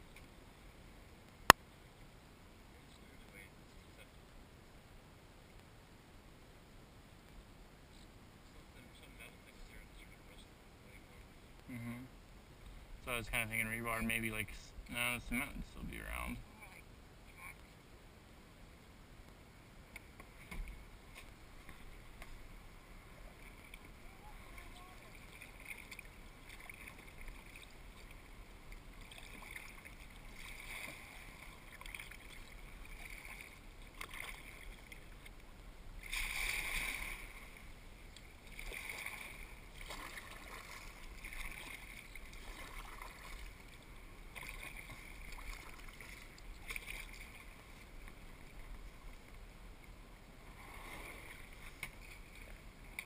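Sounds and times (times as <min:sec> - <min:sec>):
paddle splash: 0:20.0 - 0:49.4, 0:50.4 - 0:53.0
kayak paddle strokes in water: 0:20.0 - 0:53.0.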